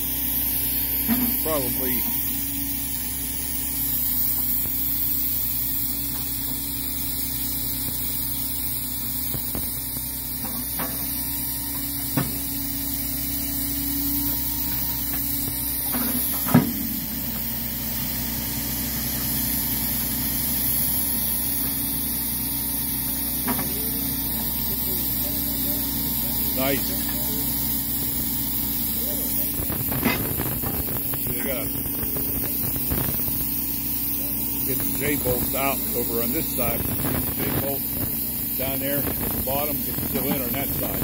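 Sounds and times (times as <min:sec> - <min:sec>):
hydraulic hum: 0:00.0 - 0:41.0
truck engine running: 0:00.0 - 0:41.0.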